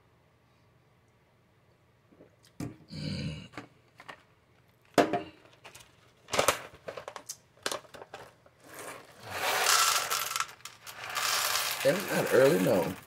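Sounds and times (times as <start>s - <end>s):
plastic packaging crinkling: 5.4s - 13.0s.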